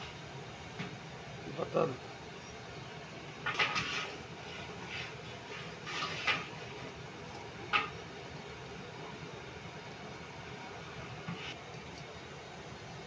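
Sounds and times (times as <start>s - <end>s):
food rustling in steel bowls: 3.4s - 8.0s.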